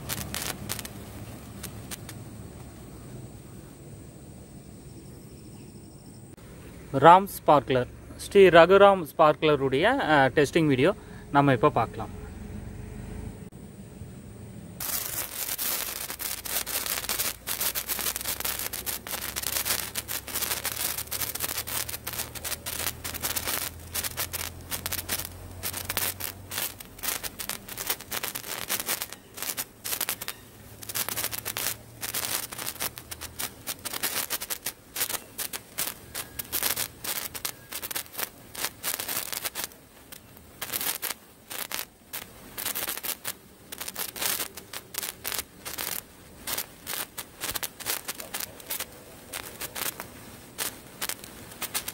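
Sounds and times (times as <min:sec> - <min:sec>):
sparkler crackling and fizzing: 0:00.0 - 0:02.9, 0:14.8 - 0:51.9.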